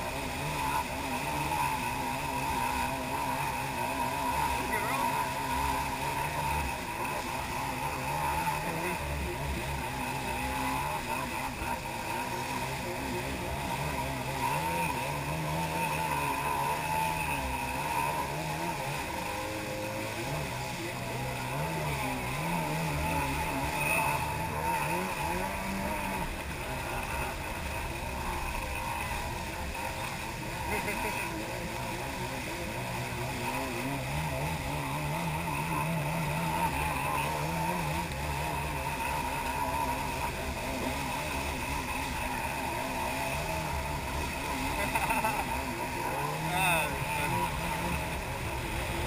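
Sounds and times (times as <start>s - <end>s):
jet ski engine running: 0.0s - 49.0s
rush of spray and water: 0.0s - 49.0s.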